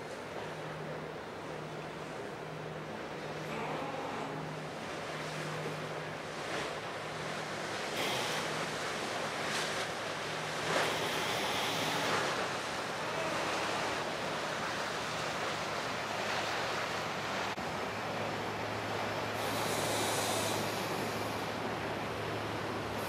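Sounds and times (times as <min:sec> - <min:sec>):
low engine hum: 0:00.0 - 0:23.0
river water splashing: 0:00.0 - 0:23.0.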